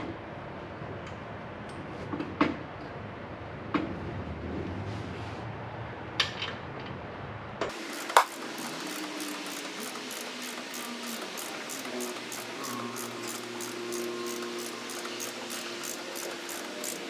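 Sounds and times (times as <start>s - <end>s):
wrench clanking on metal: 7.7s - 17.0s.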